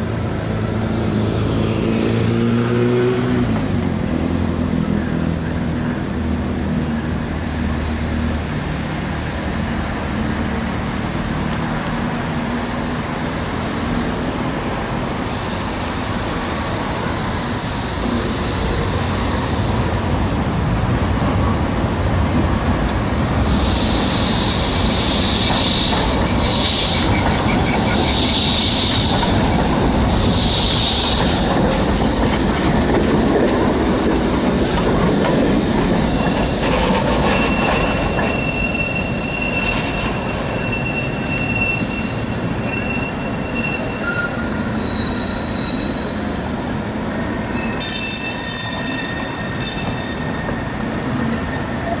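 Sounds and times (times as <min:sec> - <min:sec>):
tram rumbling over rails: 0:00.0 - 0:52.0
tram wheels squealing: 0:23.4 - 0:52.0.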